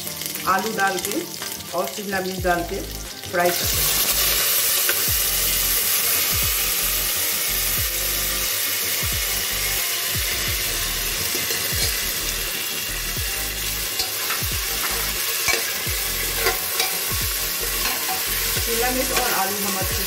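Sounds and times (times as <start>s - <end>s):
vegetables sizzling in oil: 0.0s - 20.0s
spatula stirring: 13.9s - 19.4s.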